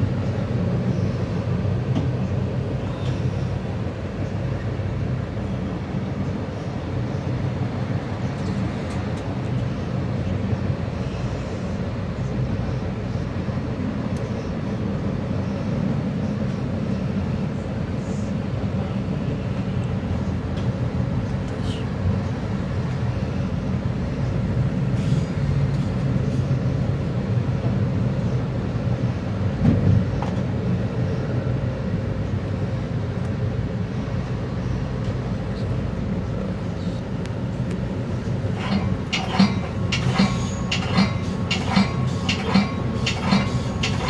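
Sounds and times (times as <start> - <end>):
train car rumbling on rails: 0.0 - 44.0
wheels clicking on track: 37.2 - 44.0.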